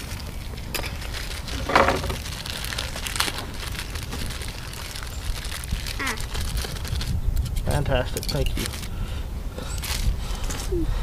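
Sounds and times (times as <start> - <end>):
packaging crinkling: 0.0 - 7.7
wind rumble on microphone: 0.0 - 11.0.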